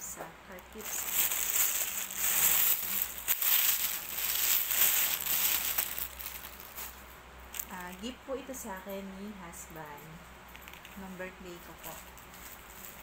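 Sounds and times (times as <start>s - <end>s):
plastic bag crinkling: 0.5s - 8.0s.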